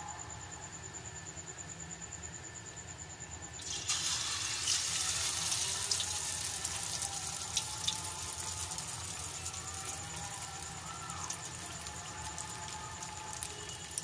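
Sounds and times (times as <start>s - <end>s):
food sizzling in hot oil: 3.6s - 14.0s
oil bubbling: 3.6s - 14.0s.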